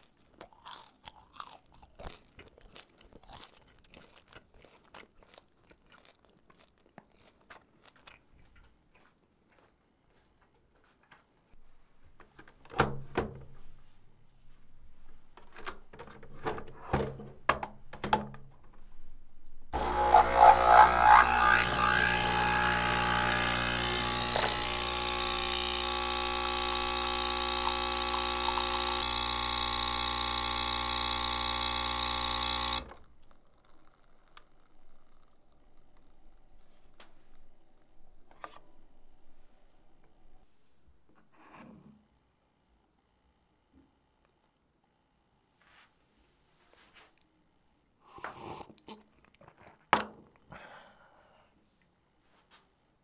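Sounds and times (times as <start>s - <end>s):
coffee machine pump humming: 19.8s - 34.9s.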